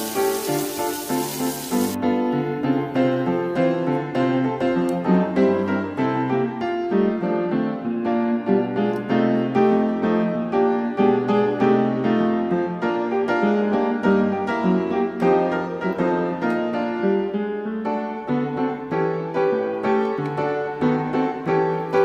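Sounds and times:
oysters sizzling in oil: 0.0 - 2.0
piano music: 0.0 - 22.0.

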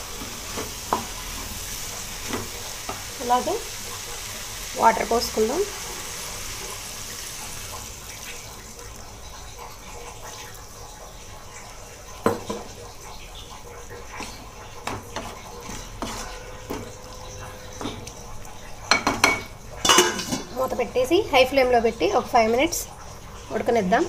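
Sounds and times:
water hissing in hot pan: 0.0 - 24.0
spatula stirring curry: 14.1 - 17.1.

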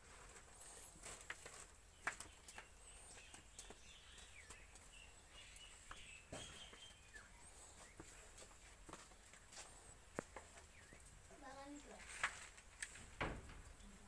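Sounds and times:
high bird chirps: 2.0 - 8.3.

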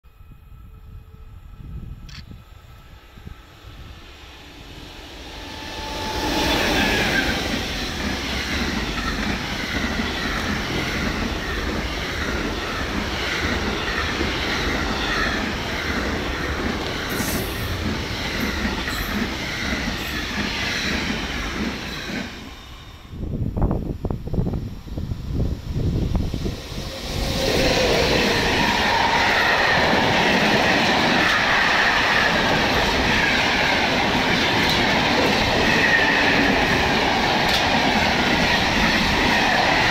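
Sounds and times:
freight train passing: 0.0 - 39.9
wheels clattering on rails: 7.0 - 22.4, 27.8 - 39.9.

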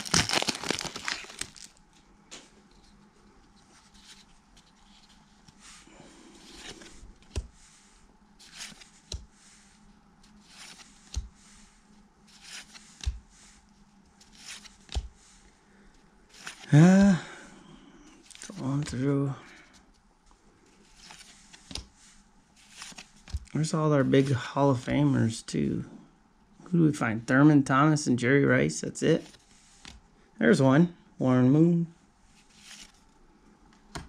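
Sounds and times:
plastic wrapper crinkling: 0.0 - 1.9.

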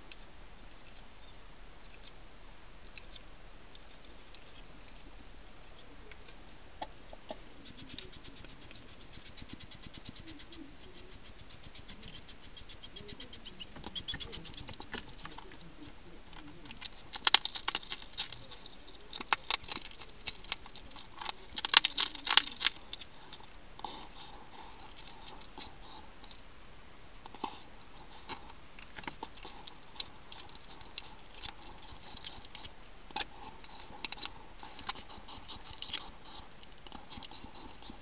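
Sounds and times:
hedgehog smacking and chewing: 6.8 - 26.4, 27.2 - 38.0
crunching of dry biscuits: 13.2 - 23.5, 27.3 - 38.0.

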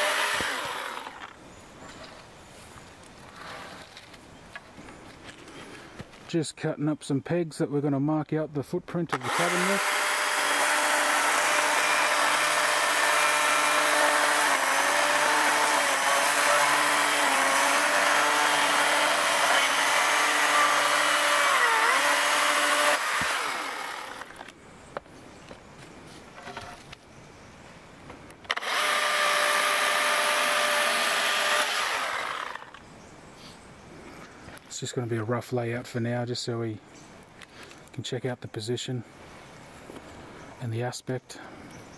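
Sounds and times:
electric chainsaw cutting: 0.0 - 1.3, 9.1 - 24.4, 28.5 - 32.8.

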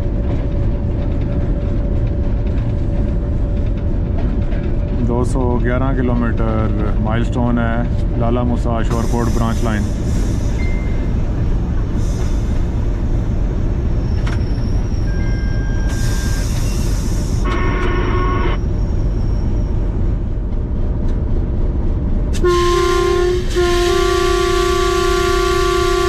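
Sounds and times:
locomotive engine running: 0.0 - 26.0
train track noise: 0.0 - 26.0
locomotive horn: 17.4 - 18.6, 22.4 - 26.0.

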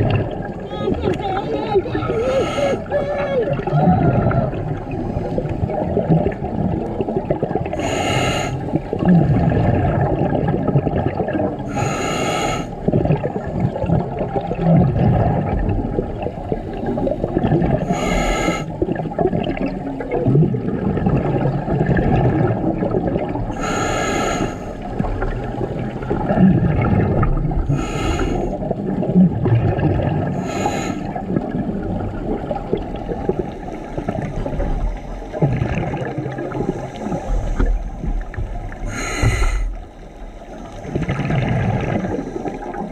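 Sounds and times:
exhaled bubbles gurgling: 0.0 - 42.9
diver inhaling through regulator: 2.1 - 2.9, 7.7 - 8.7, 11.7 - 12.8, 17.8 - 18.8, 23.5 - 24.9, 27.6 - 28.6, 30.3 - 31.2, 38.8 - 41.1.

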